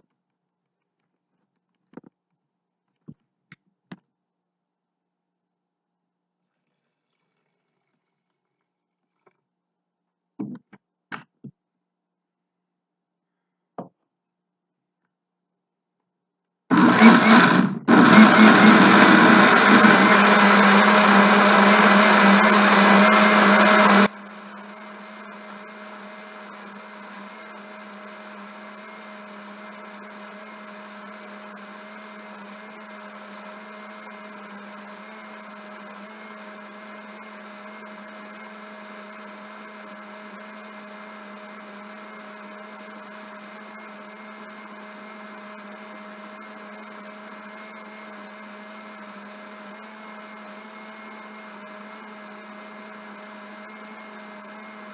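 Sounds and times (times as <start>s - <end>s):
electric blender running: 16.7s - 54.9s.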